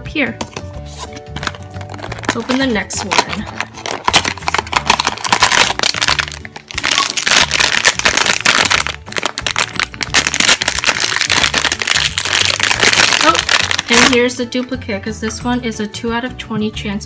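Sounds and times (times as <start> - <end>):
background music: 0.0 - 17.0
foil pouch crinkling and tearing: 1.0 - 14.2.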